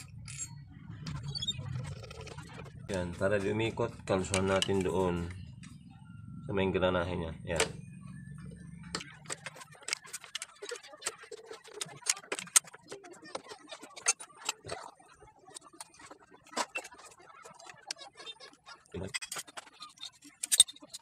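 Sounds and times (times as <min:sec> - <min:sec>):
metal parts clicking: 0:08.9 - 0:12.9, 0:19.0 - 0:21.0.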